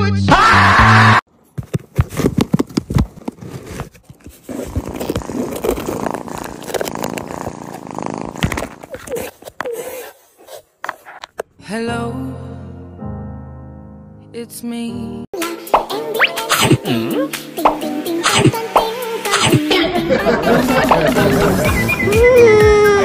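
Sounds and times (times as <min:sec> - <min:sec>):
cardboard rustling and scraping: 0:01.4 - 0:11.4
knocks and scratches: 0:01.5 - 0:11.5.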